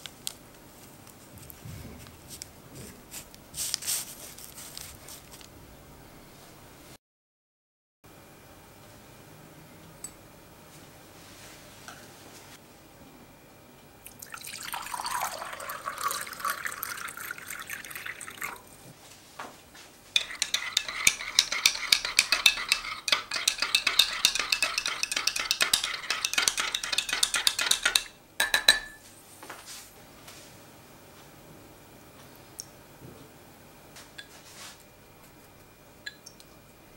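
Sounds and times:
water pouring into a glass mug: 0:14.0 - 0:18.7.

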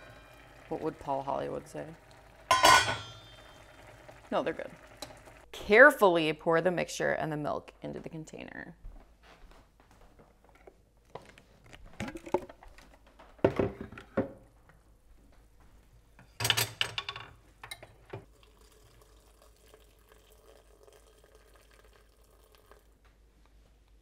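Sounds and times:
cookware knocking and clattering: 0:02.5 - 0:03.6, 0:13.4 - 0:14.4, 0:16.2 - 0:18.2.

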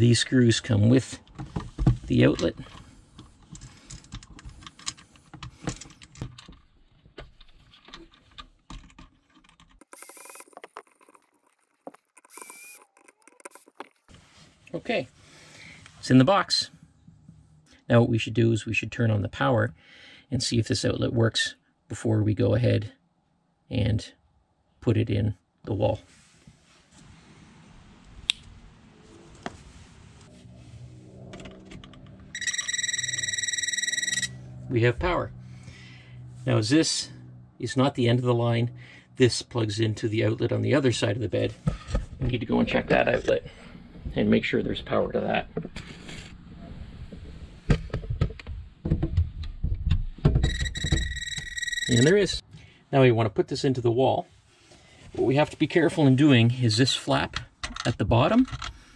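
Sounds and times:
voltage tester beeping: 0:09.8 - 0:10.5, 0:12.2 - 0:13.6, 0:32.3 - 0:34.4, 0:50.4 - 0:52.4
cordless drill whining: 0:12.2 - 0:13.0.

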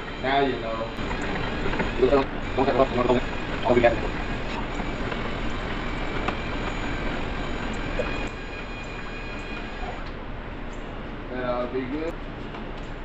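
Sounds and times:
drill motor whine: 0:00.0 - 0:10.2
liquid churning: 0:01.0 - 0:10.1.

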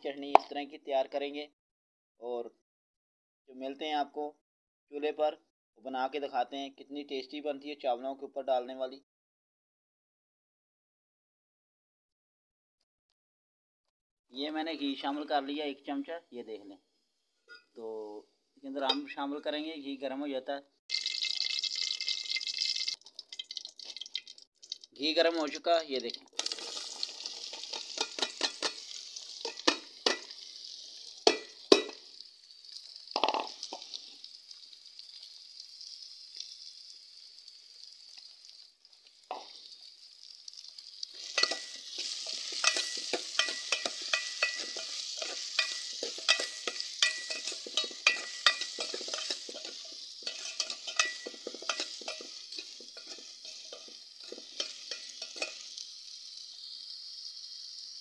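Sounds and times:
food sizzling in hot fat: 0:20.9 - 0:58.0
metal spoon scraping pot: 0:26.5 - 0:30.3, 0:41.2 - 0:55.7
spoon knocking: 0:27.8 - 0:28.8, 0:29.4 - 0:30.3, 0:31.3 - 0:32.0, 0:41.3 - 0:55.6.

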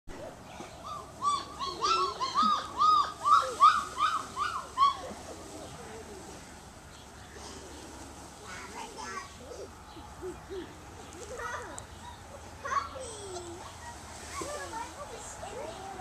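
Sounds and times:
animal high calls: 0:00.8 - 0:05.2.

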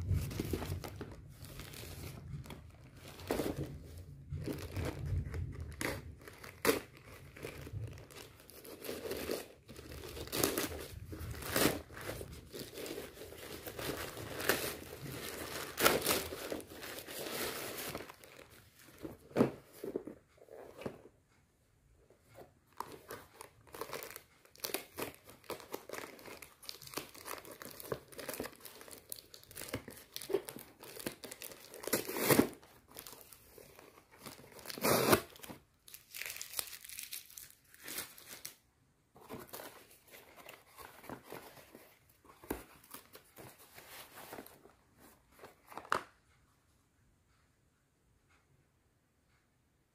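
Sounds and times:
packing tape peeled and torn: 0:05.7 - 0:18.2, 0:23.7 - 0:38.5.

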